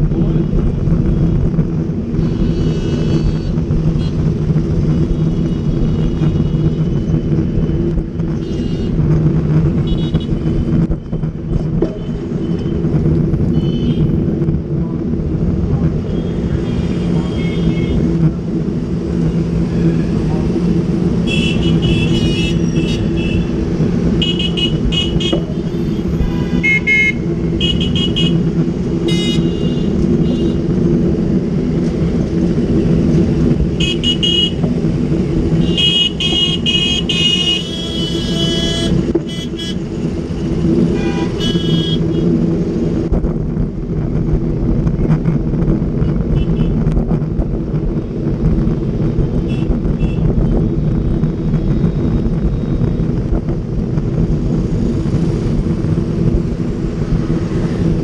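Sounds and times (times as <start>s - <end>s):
traffic engine rumble: 0.0s - 58.0s
car horns honking: 21.2s - 23.5s, 24.2s - 28.4s, 29.0s - 30.6s, 33.8s - 34.6s, 35.6s - 39.8s, 40.9s - 42.2s.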